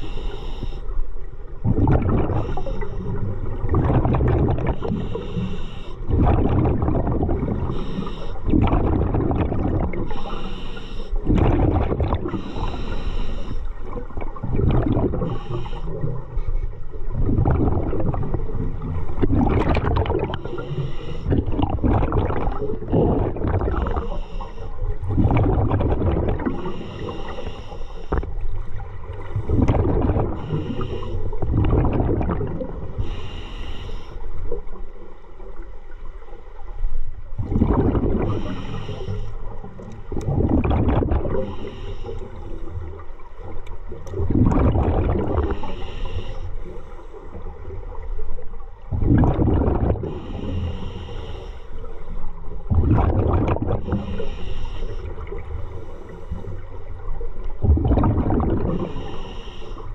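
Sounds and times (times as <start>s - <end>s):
regulator inhale hiss: 0.0s - 1.2s, 2.3s - 3.3s, 4.7s - 6.1s, 7.6s - 8.5s, 10.1s - 11.3s, 12.3s - 14.0s, 15.2s - 16.5s, 20.4s - 21.5s, 23.8s - 25.0s, 26.4s - 28.4s, 30.4s - 31.5s, 32.8s - 34.6s, 38.2s - 40.1s, 41.3s - 43.0s, 45.4s - 47.5s, 50.0s - 52.4s, 53.8s - 57.0s, 58.7s - 59.9s
gurgling exhaust bubbles: 1.6s - 2.6s, 3.2s - 5.3s, 6.1s - 7.8s, 8.4s - 10.2s, 11.2s - 12.5s, 14.0s - 15.4s, 17.1s - 20.7s, 21.3s - 24.0s, 25.0s - 26.7s, 29.2s - 30.8s, 31.4s - 33.0s, 37.4s - 38.6s, 39.7s - 41.6s, 44.0s - 45.6s, 48.9s - 50.5s, 52.6s - 54.3s, 57.5s - 59.1s.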